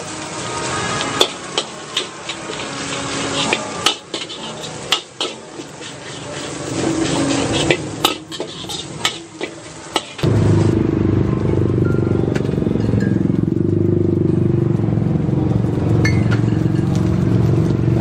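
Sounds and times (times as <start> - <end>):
spatula scraping wok: 0.0 - 10.8
stir-frying sizzle: 0.0 - 10.9
spatula clanking on pan: 1.0 - 10.2.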